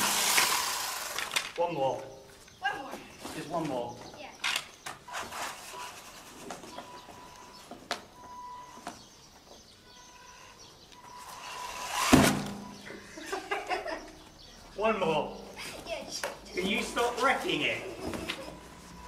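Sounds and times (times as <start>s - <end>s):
electric rc buggy running: 0.0s - 1.6s, 11.2s - 12.4s.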